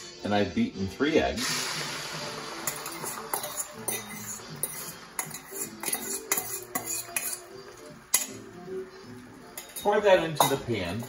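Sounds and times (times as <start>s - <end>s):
fork clinking in metal bowl: 2.7s - 8.6s, 9.4s - 11.0s.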